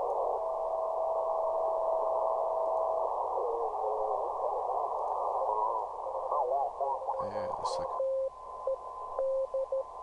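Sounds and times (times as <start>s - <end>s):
steady radio tone: 0.0s - 9.9s
radio static hiss: 0.0s - 10.0s.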